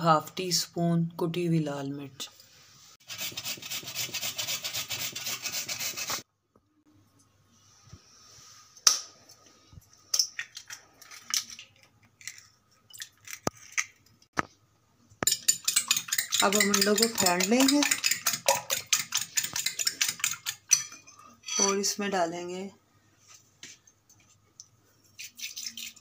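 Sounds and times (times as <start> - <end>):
potato scraped on metal grater: 3.0 - 6.2.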